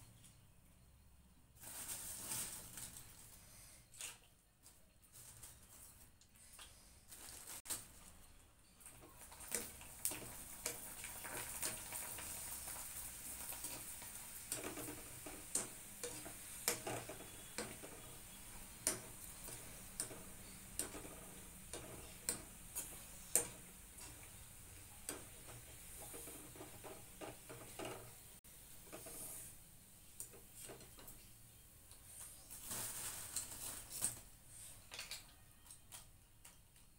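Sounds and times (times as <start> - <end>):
food sizzling in hot oil: 9.2 - 29.6.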